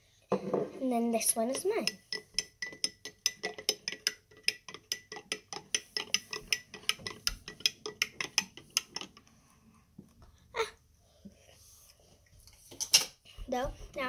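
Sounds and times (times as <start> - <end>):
spoon stirring in glass jar: 1.5 - 9.2.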